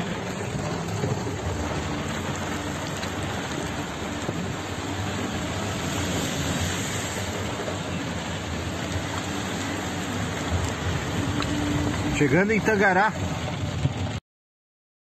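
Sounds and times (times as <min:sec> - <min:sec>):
engine and tyre rumble: 0:00.0 - 0:14.2
rain on a car: 0:00.0 - 0:14.2.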